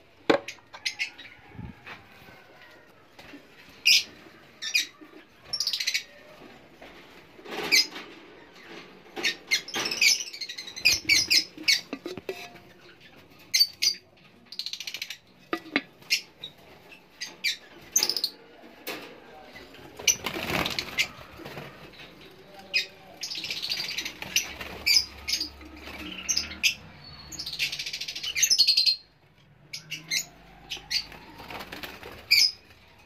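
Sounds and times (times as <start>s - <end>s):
lovebirds chirping and squeaking: 0.4s - 1.8s, 3.2s - 6.3s, 7.4s - 18.4s, 19.6s - 33.0s.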